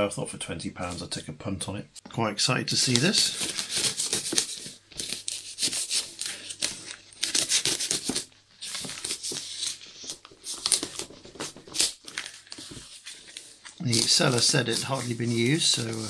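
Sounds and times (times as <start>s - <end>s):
wrapping crinkling: 2.7s - 16.0s
knife slitting packing tape: 7.2s - 9.8s, 10.4s - 12.7s, 13.9s - 16.0s.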